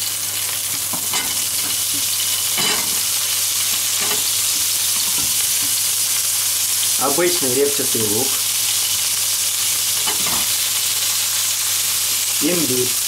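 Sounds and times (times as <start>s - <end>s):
celery sizzling in hot fat: 0.0s - 13.0s.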